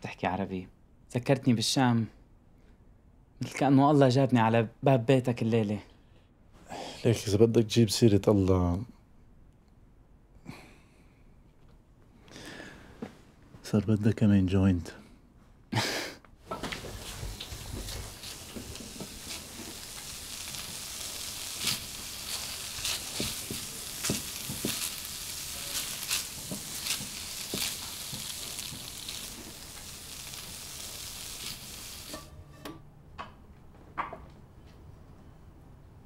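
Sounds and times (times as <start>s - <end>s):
spatula scraping and tapping pan: 16.5s - 29.9s, 32.0s - 32.8s
eggs sizzling in a frying pan: 16.5s - 32.3s.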